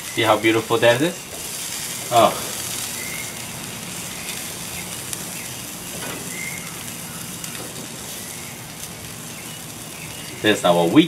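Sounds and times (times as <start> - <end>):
vegetables sizzling on a grill: 0.0 - 11.0
bird chirping: 1.9 - 10.7.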